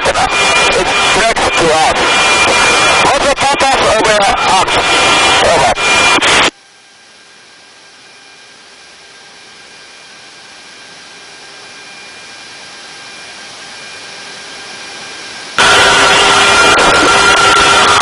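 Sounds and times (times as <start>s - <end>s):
jet engine rushing hiss: 14.6s - 18.0s.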